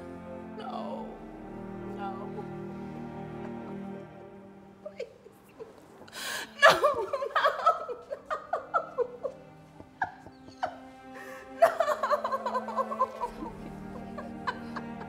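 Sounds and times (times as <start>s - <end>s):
soft background music: 0.0s - 15.0s
woman sobbing: 4.8s - 15.0s.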